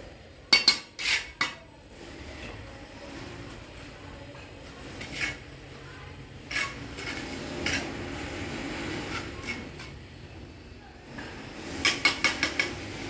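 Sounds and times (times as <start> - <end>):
trowel clinking on bricks: 0.5 - 1.6.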